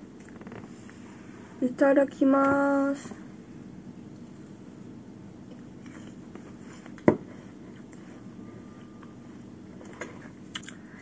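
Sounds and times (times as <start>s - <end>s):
quiet chewing: 9.8s - 10.8s.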